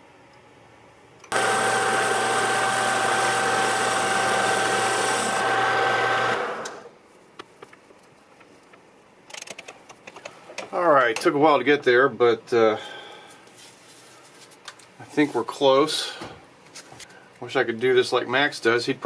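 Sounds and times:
lathe machine running with whine: 1.3 - 6.9.

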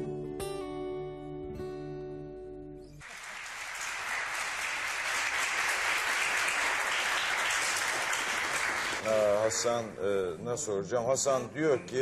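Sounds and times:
audience applause: 3.0 - 9.8.

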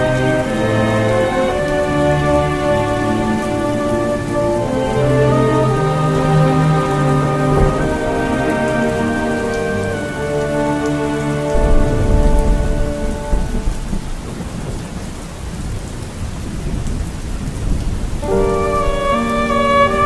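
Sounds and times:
soft sustained music: 0.0 - 14.3, 18.2 - 20.0
steady rain falling: 0.0 - 20.0
deep rumble of thunder: 5.7 - 9.6, 11.5 - 20.0.

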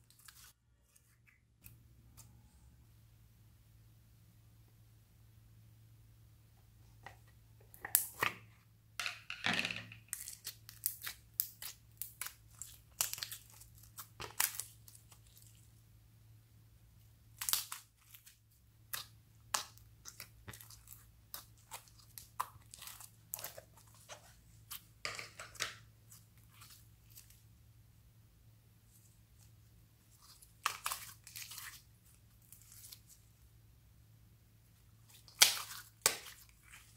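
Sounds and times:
slime crackling and popping: 10.1 - 15.6, 17.3 - 24.9, 35.1 - 36.9.

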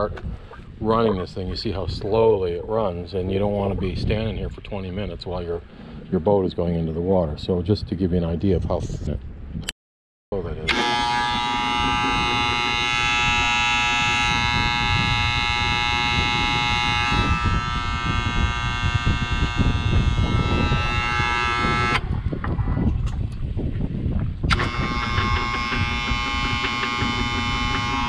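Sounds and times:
steady low rumble: 10.3 - 28.0
motor contactors buzzing: 10.7 - 22.1, 24.5 - 28.0.

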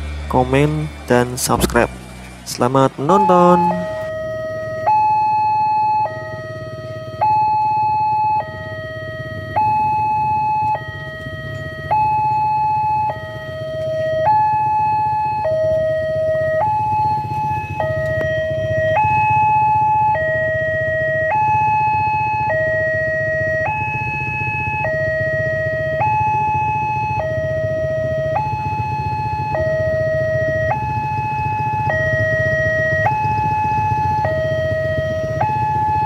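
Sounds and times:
steady low rumble: 0.0 - 4.5
level crossing two-tone alarm: 0.3 - 36.0.

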